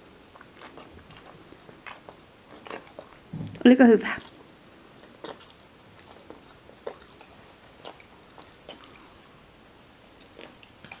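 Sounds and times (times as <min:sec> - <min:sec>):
dog chewing: 0:00.3 - 0:09.2, 0:10.1 - 0:11.0.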